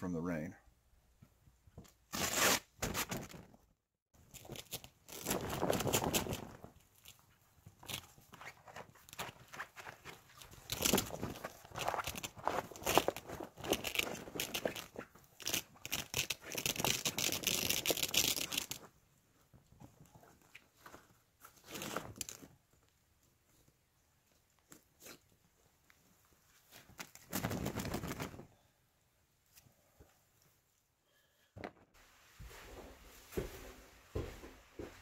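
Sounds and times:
fabric and plastic rustling: 2.3s - 28.6s.

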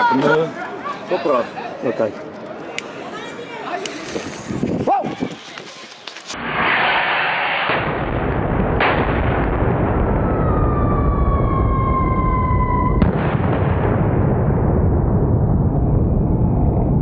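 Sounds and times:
falling firework whistle: 6.4s - 8.0s, 9.8s - 13.4s
firework crackling bangs: 6.4s - 10.6s, 13.0s - 15.6s.

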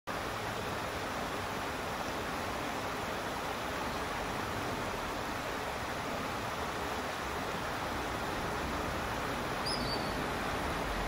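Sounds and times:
rocky stream rushing: 0.1s - 11.0s
high bird call: 9.6s - 10.3s.

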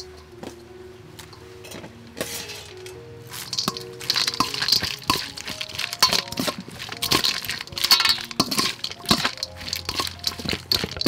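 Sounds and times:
metal spoon clinking on steel bowl: 2.2s - 11.0s.

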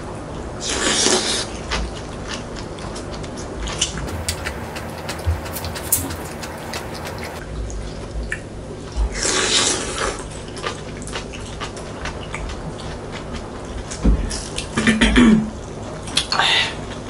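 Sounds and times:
spoon stirring wet soup: 4.1s - 7.4s
utensils clicking against bowls: 4.1s - 7.4s.

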